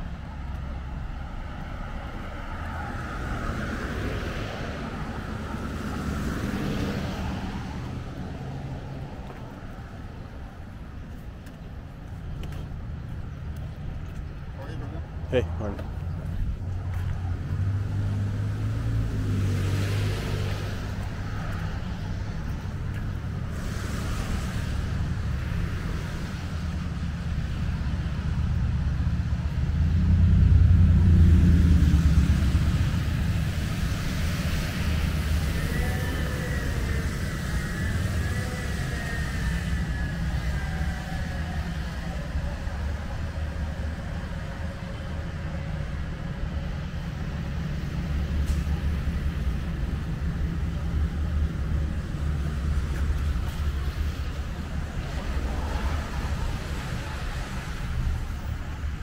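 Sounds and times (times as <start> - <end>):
road traffic rumble: 0.0 - 59.0
car tyres hissing on wet road: 18.1 - 28.4, 30.8 - 59.0.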